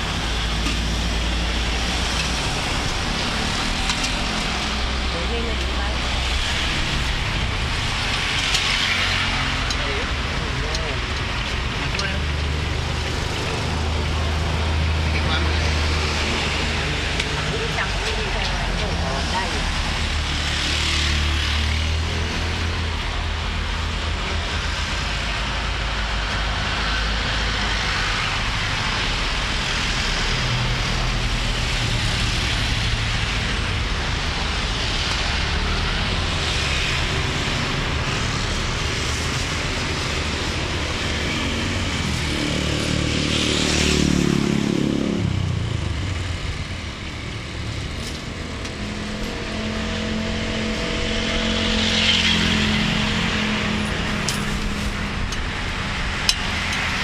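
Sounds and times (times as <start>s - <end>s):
traffic hum: 0.0s - 57.0s
engine hum: 27.5s - 57.0s
vehicle passing by: 35.4s - 57.0s.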